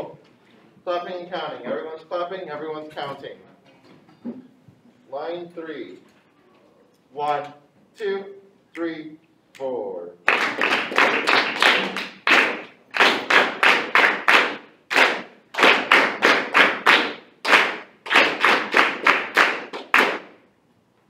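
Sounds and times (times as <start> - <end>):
students clapping a rhythm: 9.6 - 20.5.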